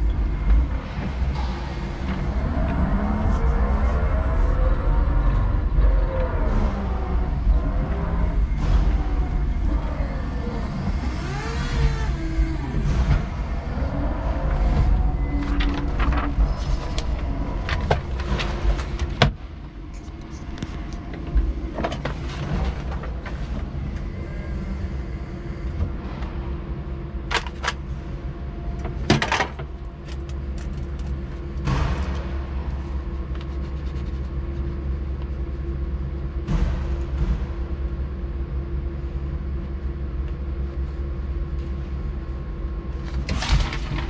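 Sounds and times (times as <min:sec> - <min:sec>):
electric forklift humming: 0:00.0 - 0:33.4.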